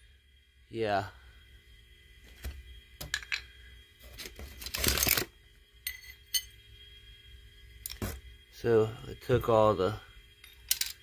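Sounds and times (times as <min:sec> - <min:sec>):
metal parts clinking on concrete: 0:05.8 - 0:06.5, 0:10.4 - 0:11.0.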